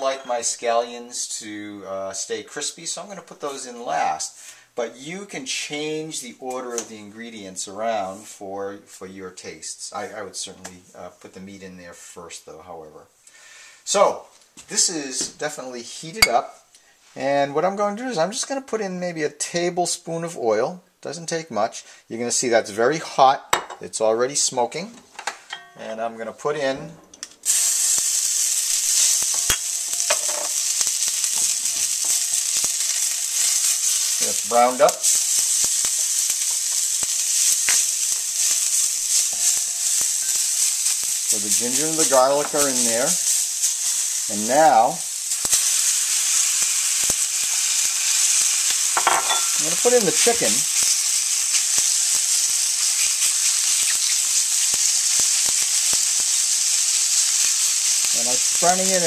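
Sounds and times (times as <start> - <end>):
loud sizzle in hot oil: 0.0 - 4.5, 27.4 - 59.0.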